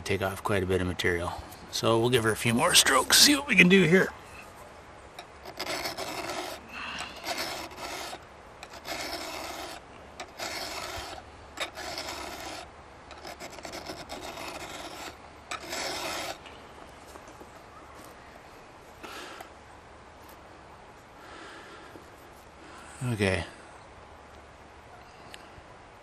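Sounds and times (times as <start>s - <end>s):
file rasping on chainsaw chain: 5.2s - 16.4s.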